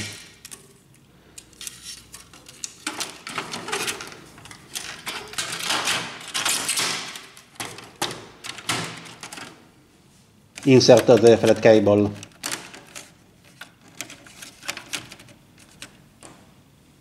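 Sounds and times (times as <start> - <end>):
plastic parts knocking and clicking: 2.2 - 9.6, 10.6 - 16.4.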